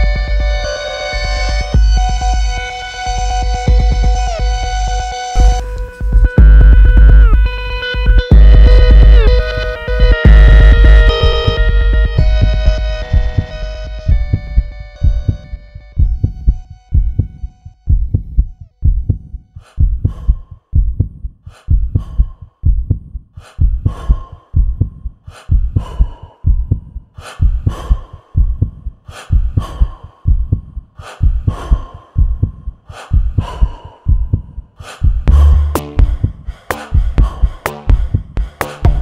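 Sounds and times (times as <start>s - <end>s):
electronic music with kick drum: 0.0s - 19.4s, 35.2s - 39.0s.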